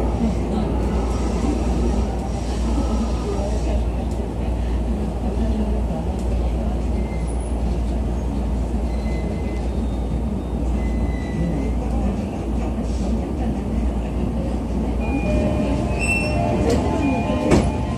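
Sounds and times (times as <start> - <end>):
train wheels rumbling on track: 0.0 - 17.9.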